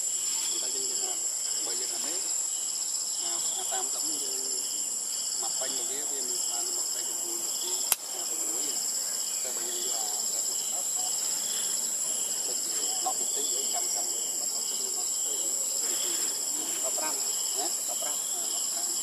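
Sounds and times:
insects droning: 0.0 - 19.0
sharp click: 7.9 - 8.1.

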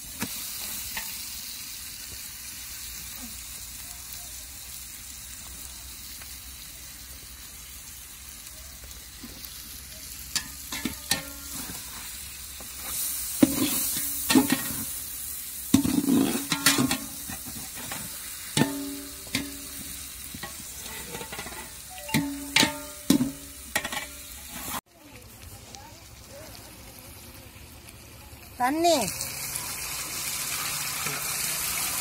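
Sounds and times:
steady sizzle: 0.0 - 32.0
metal spatula knocking on pot: 18.6 - 19.6, 22.1 - 24.1.

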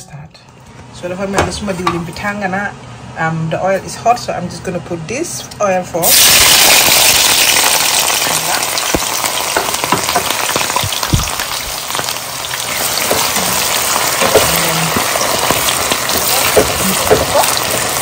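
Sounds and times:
onions sizzling in hot oil: 6.0 - 18.0
spatula stirring: 9.5 - 18.0.

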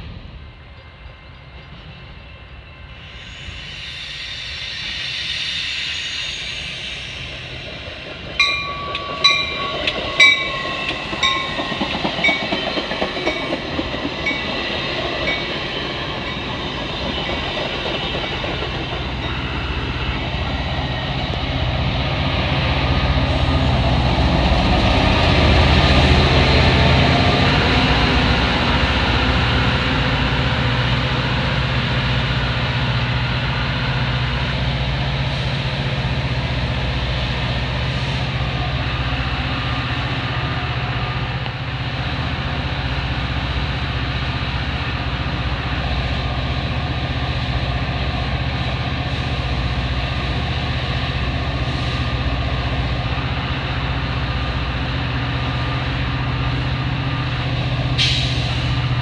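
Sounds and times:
diesel locomotive drone: 0.0 - 59.0
train cars rumbling on rails: 0.0 - 59.0
train bell ringing: 8.2 - 20.0.

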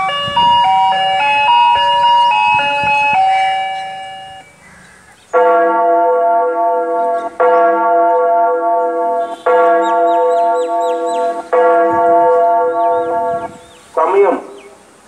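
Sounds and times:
bell chime tune over loudspeakers: 0.0 - 4.6
bell tolling: 0.0 - 4.6.

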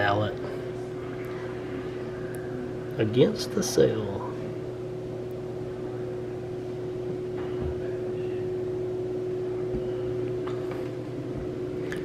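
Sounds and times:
mechanical hum: 0.0 - 12.0.

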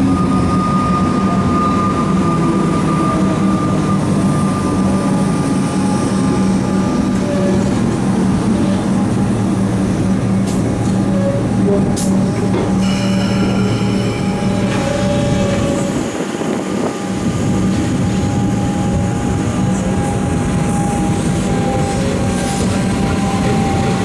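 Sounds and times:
electric train hum and whine: 0.0 - 24.0
high squealing tones: 12.8 - 16.8.

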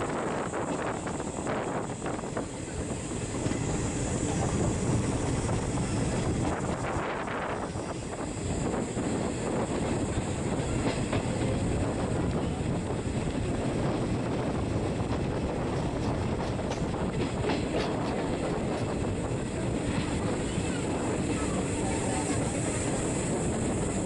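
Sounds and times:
sharp clicks of train wheels: 0.0 - 24.0
train wheels rumbling on rails: 0.0 - 24.0.

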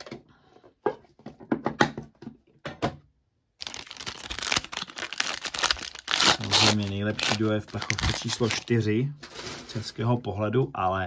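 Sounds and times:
packaging clicks: 3.6 - 8.7
plastic wrapping crinkling and tearing: 3.6 - 9.8.

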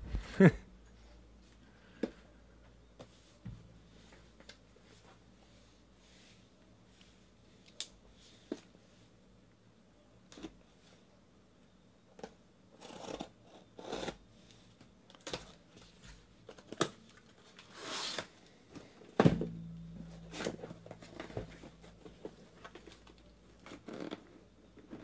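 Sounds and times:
sharp knock: 19.2 - 22.8.

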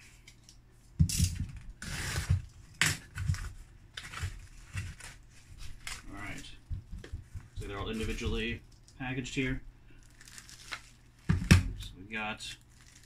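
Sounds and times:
cardboard knocking and rustling: 11.3 - 11.8
packing tape pulled off: 12.6 - 13.0.

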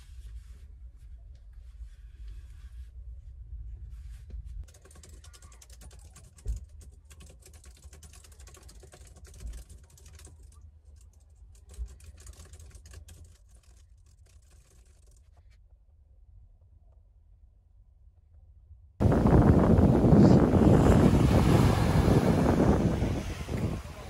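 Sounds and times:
fast keyboard typing: 4.7 - 15.2.

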